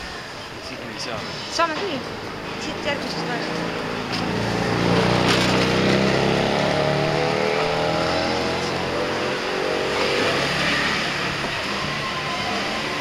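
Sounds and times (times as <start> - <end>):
small engine driving off: 3.1 - 13.0.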